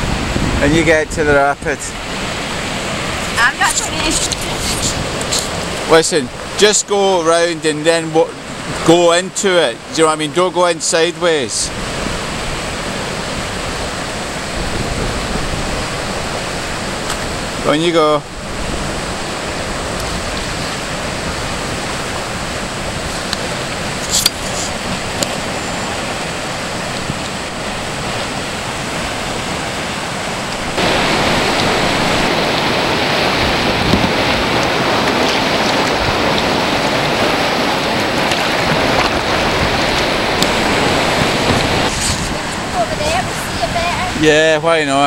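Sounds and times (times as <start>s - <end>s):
water rushing over weir: 0.0s - 45.0s.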